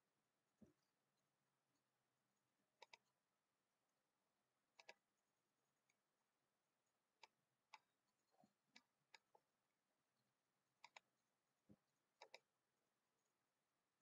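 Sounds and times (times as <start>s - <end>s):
faint mouse clicks: 2.8s - 3.2s, 4.8s - 5.1s, 7.2s - 9.5s, 10.8s - 12.5s.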